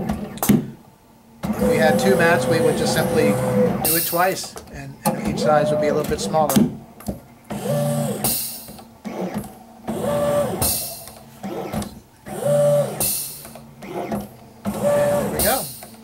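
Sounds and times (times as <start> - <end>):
mat cutter motor whine: 1.4 - 4.3, 5.1 - 6.5, 7.5 - 15.9.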